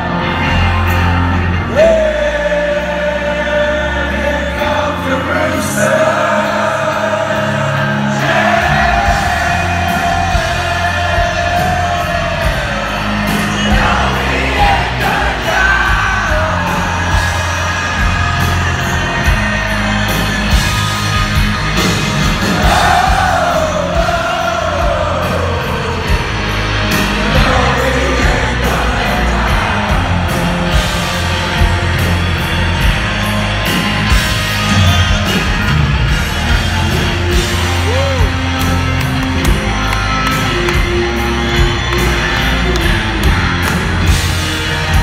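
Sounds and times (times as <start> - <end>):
live rock band playing: 0.0 - 45.0
held sung vocal: 1.6 - 19.2, 27.0 - 31.3.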